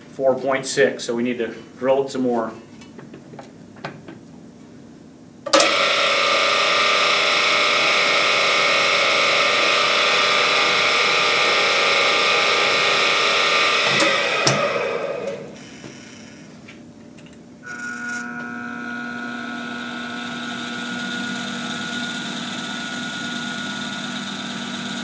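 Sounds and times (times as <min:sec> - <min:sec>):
electric drill boring into metal: 0:05.5 - 0:16.5, 0:17.6 - 0:25.0.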